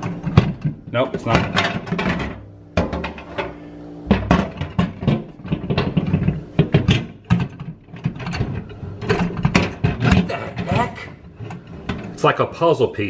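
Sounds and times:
glass tray clunking and rattling: 1.3s - 3.5s, 4.1s - 12.1s
short steady hum: 2.4s - 4.6s.

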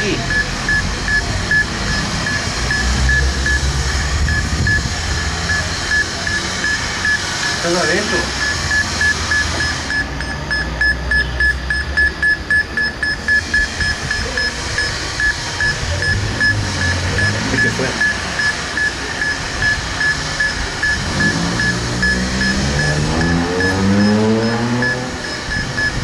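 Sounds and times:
detector beeping: 0.0s - 26.0s
low sound rising in pitch: 19.2s - 26.0s.

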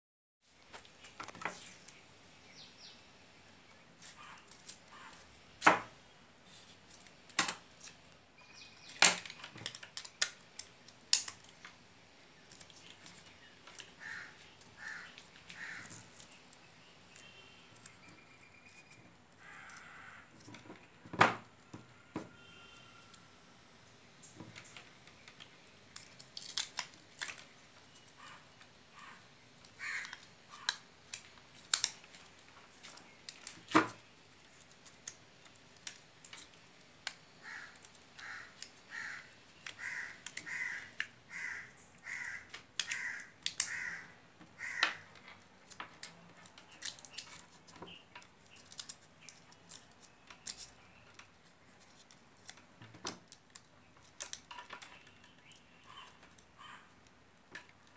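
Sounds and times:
sharp clicks and rustles: 44.4s - 57.9s
short evenly spaced calls: 55.1s - 57.0s.

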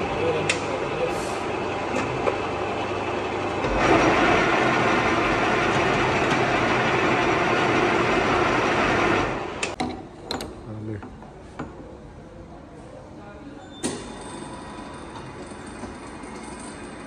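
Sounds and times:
boring machine hum: 0.0s - 9.8s.

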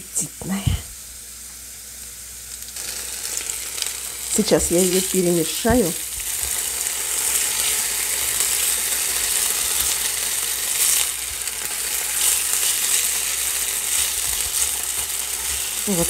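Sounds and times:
potatoes sizzling in oil: 0.1s - 16.0s.

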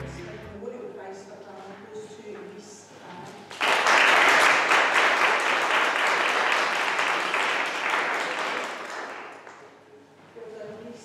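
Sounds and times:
audience applauding: 3.6s - 9.7s.

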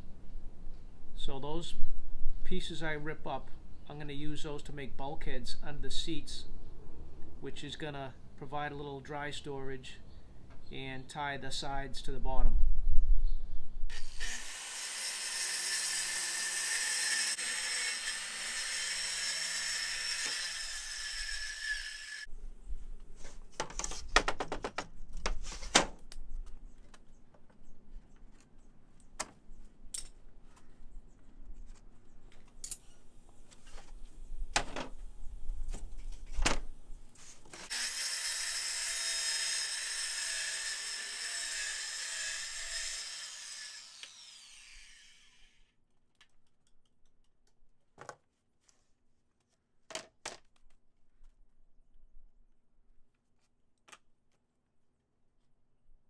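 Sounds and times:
circular saw cutting plywood: 13.9s - 22.3s, 37.6s - 45.6s.

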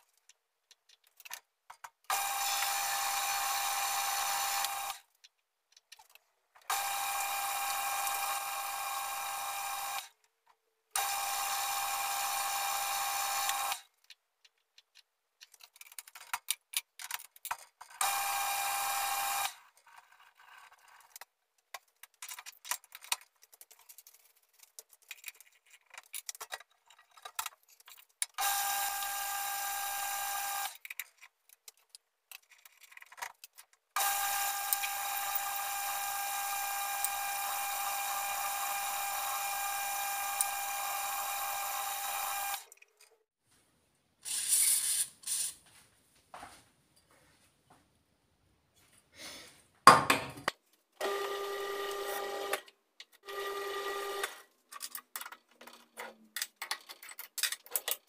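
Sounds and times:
tools clicking and tapping: 0.0s - 2.7s, 4.6s - 6.8s, 13.5s - 18.1s, 21.1s - 28.4s, 54.2s - 58.0s
metal lathe whining: 34.0s - 42.7s.

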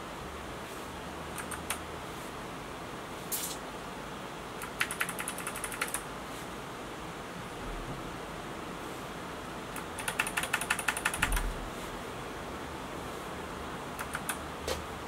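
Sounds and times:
keyboard key clicks: 4.6s - 6.0s, 14.0s - 14.8s.

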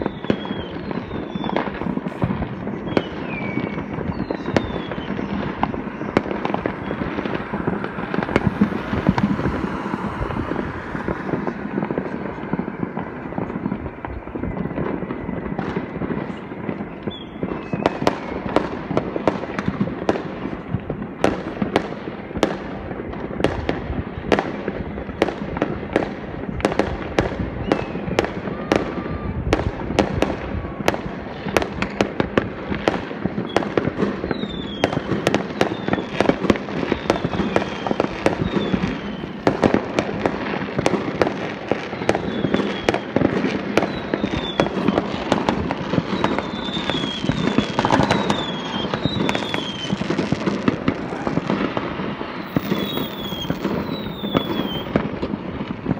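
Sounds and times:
fireworks bangs and crackles: 0.0s - 55.9s
high falling whistles: 2.8s - 6.2s, 52.4s - 54.9s.

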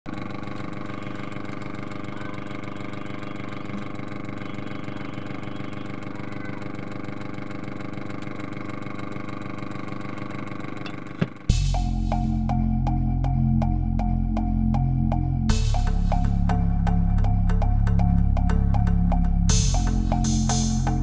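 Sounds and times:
electric motors whirring: 0.1s - 12.4s.

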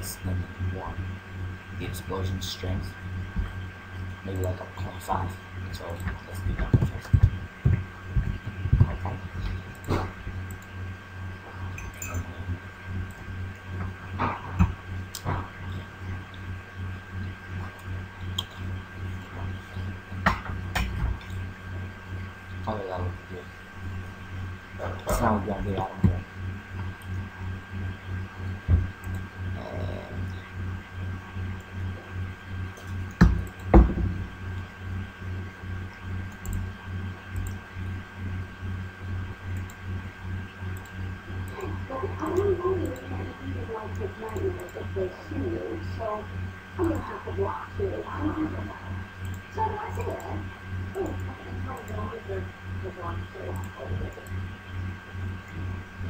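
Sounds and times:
faint high whine: 0.0s - 56.0s
low hum: 0.0s - 56.0s
low thump: 33.2s - 34.2s
computer mouse clicks: 37.4s - 37.6s, 39.5s - 39.8s, 49.2s - 50.2s.

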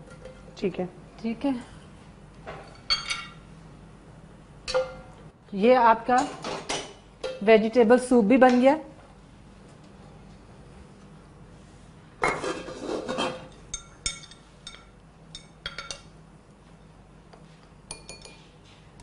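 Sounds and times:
utensils clattering against pots: 12.2s - 16.1s.

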